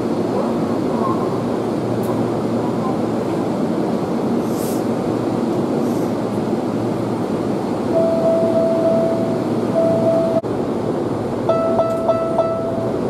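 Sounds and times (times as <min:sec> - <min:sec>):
steady single-pitched tone: 0:07.9 - 0:10.4.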